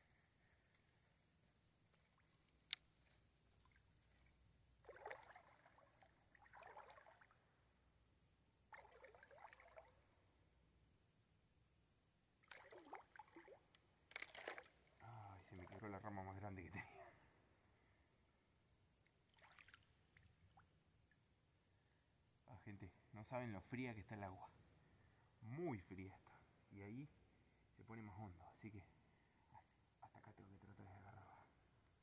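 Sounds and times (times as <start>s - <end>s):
water sloshing and lapping: 2.0s - 2.7s, 3.4s - 7.5s, 8.7s - 10.0s, 12.4s - 15.0s, 19.3s - 20.6s.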